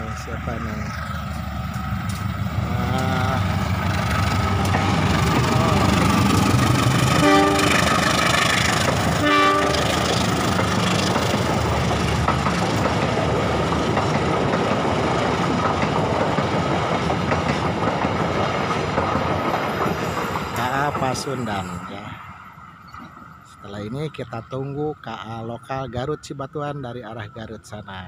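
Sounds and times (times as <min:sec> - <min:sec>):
locomotive running past: 0:00.0 - 0:24.4
wheel and rail rumble: 0:00.0 - 0:26.2
train horn blasts: 0:07.1 - 0:08.1, 0:09.2 - 0:10.1.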